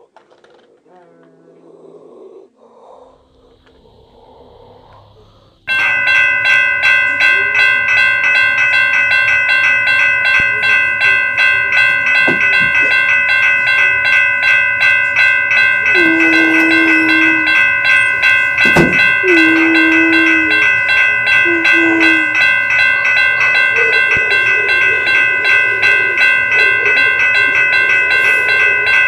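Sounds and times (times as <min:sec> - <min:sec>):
electronic crossing bell dinging: 0:05.7 - 0:29.0
low horn-like tone: 0:15.9 - 0:17.6.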